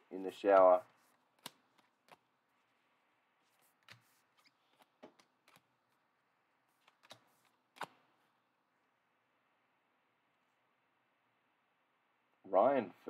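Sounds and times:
trading cards clicking: 1.4s - 2.2s, 6.8s - 8.0s.

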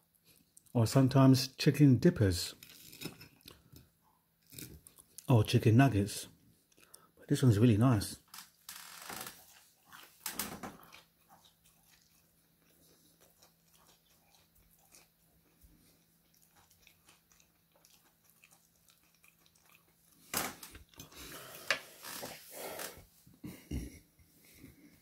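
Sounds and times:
quiet chewing: 0.1s - 0.8s, 2.5s - 5.3s, 6.5s - 7.2s, 9.2s - 25.0s.

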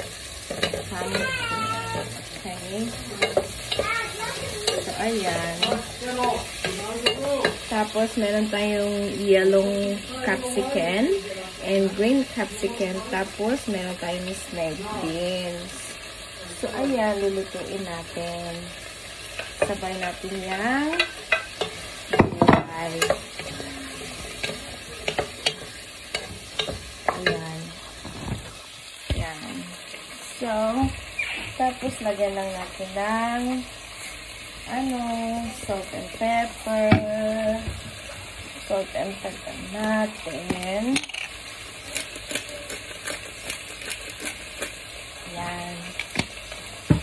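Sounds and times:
small clicks and taps stirring: 0.0s - 7.7s, 19.1s - 29.4s, 39.8s - 45.0s, 45.8s - 47.0s
vegetables sizzling in a frying pan: 0.0s - 47.0s
utensil knocking and scraping pan: 19.3s - 29.3s.

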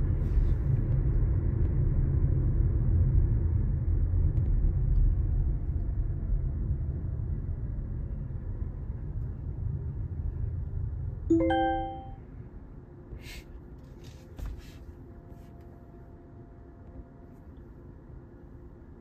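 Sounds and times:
two-note electronic chime: 11.3s - 12.2s.

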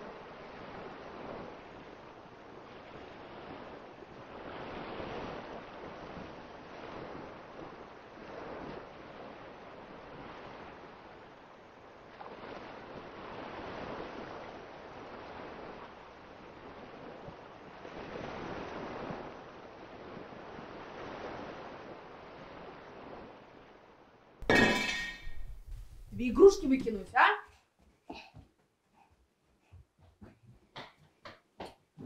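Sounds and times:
waves washing in: 0.0s - 24.4s.

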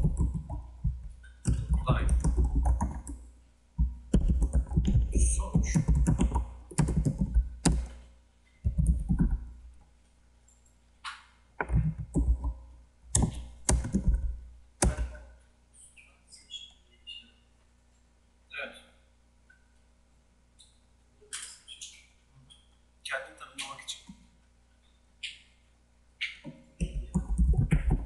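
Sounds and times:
typing on computer keyboard: 0.0s - 3.2s, 3.8s - 8.0s, 8.7s - 9.5s, 11.6s - 15.1s, 26.8s - 28.0s.

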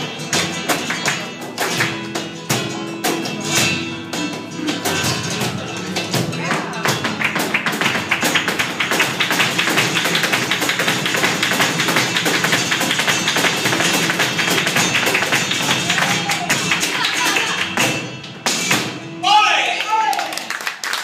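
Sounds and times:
handclaps: 0.0s - 2.4s, 6.0s - 18.8s, 19.8s - 21.0s
cajon drumming: 0.0s - 19.2s
flamenco guitar: 0.0s - 19.2s
dancer's stamping footwork: 5.2s - 19.0s.

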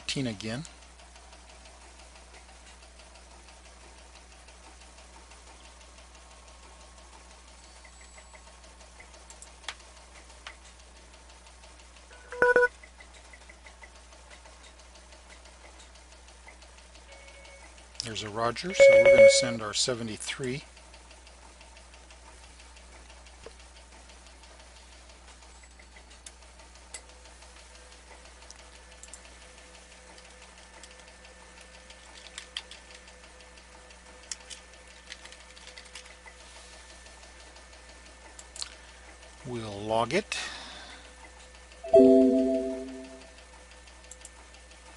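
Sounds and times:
short electronic beep: 12.1s - 12.7s, 18.7s - 19.6s, 41.9s - 43.2s
electrical hum: 18.5s - 19.7s.

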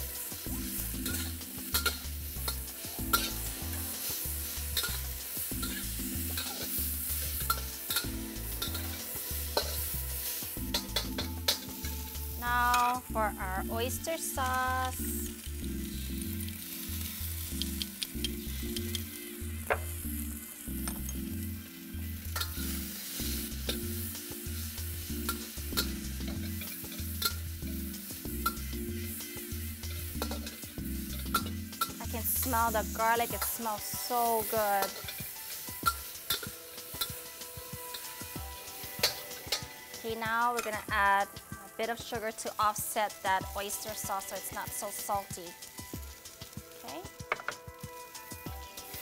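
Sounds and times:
metal spatula scraping wok: 0.0s - 13.0s, 22.1s - 40.9s
food sizzling in a wok: 0.0s - 49.0s
low background music: 0.0s - 49.0s.

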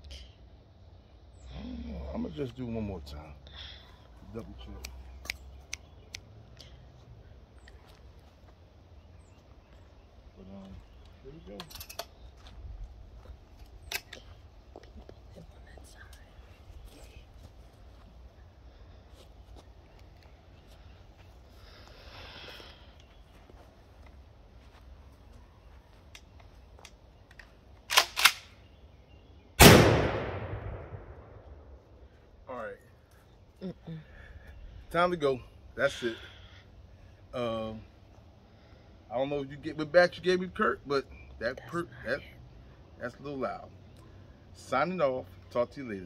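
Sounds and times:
sharp clicks: 26.1s - 28.6s
shotgun being racked: 27.9s - 28.5s
loud gunshot: 29.6s - 31.6s.

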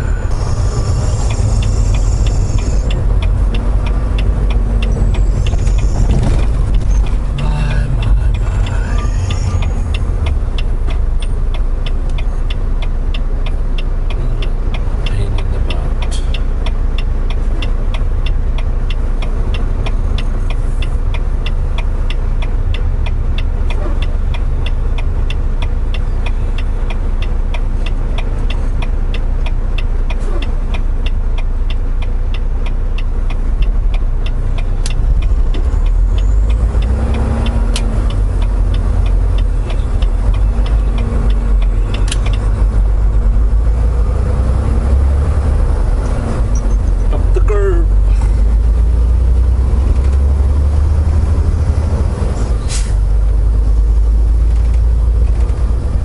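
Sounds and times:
diesel engine rumbling: 0.0s - 56.0s.

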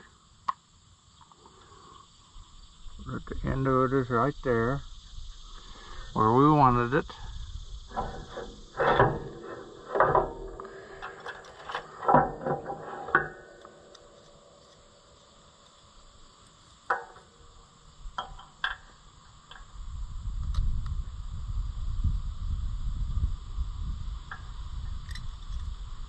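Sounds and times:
wood and steel knocking on metal: 7.9s - 14.3s, 18.2s - 18.9s.

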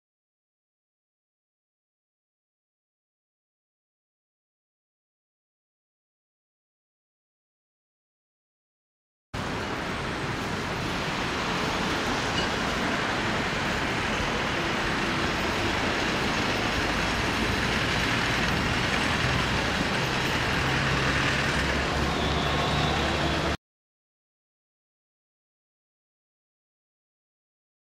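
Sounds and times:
road traffic rushing: 9.4s - 23.6s.

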